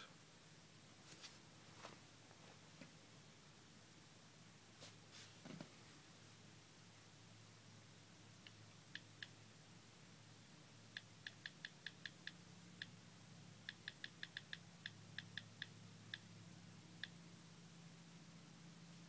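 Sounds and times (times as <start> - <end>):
low steady hum: 0.0 - 19.0
key-press clicks from typing: 11.0 - 12.9, 13.7 - 16.3.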